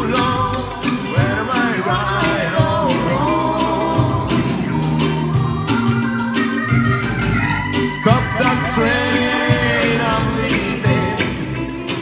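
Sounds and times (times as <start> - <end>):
live reggae band playing: 0.0 - 12.0
wavering melodic line: 4.7 - 10.9.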